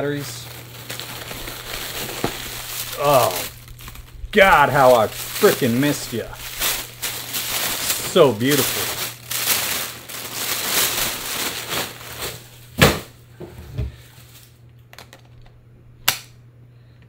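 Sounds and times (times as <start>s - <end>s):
packaging crinkling: 0.0s - 13.1s.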